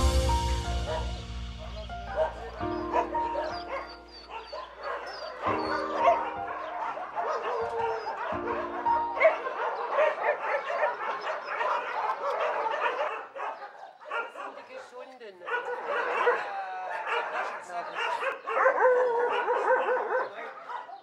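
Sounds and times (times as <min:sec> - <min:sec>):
background music with held notes: 0:00.0 - 0:10.6
dogs barking and yipping: 0:00.7 - 0:21.0.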